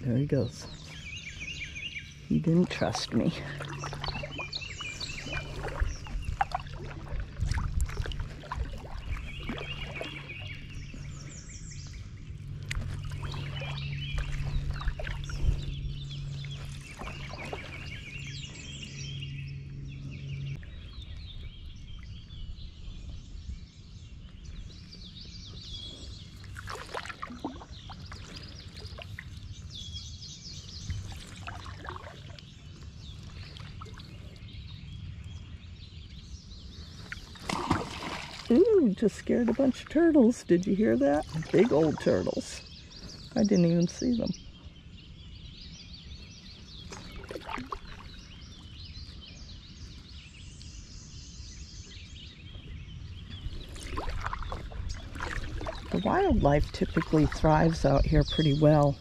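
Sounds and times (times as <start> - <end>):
quiet water sounds: 0.0 - 59.0
songbirds trilling: 0.0 - 59.0
steady low hum: 0.0 - 59.0.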